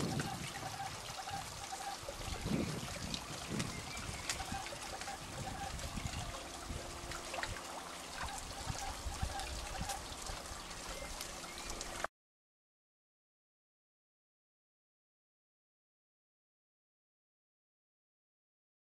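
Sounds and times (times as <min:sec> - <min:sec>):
fish splashing: 0:00.0 - 0:12.1
water trickling: 0:00.0 - 0:12.1.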